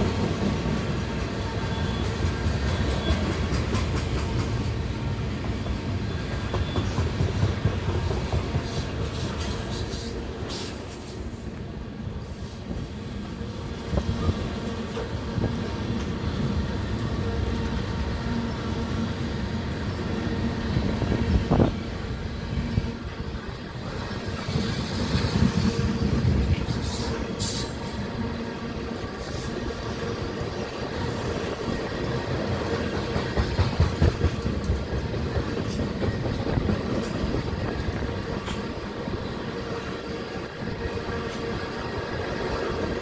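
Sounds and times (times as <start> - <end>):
wheels clicking over rail joints: 0.0 - 4.8
freight train rumbling past: 0.0 - 43.0.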